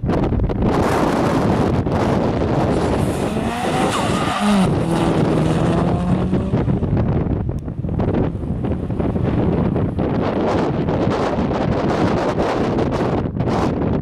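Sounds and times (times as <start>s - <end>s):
wind buffeting microphone: 0.0s - 14.0s
car engine accelerating: 2.0s - 11.0s.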